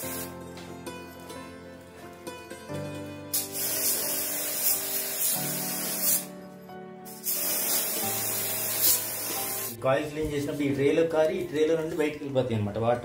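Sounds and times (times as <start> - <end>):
water jet spraying on metal coil: 0.0 - 0.3, 3.4 - 6.3, 7.1 - 9.8
background music: 0.0 - 13.0.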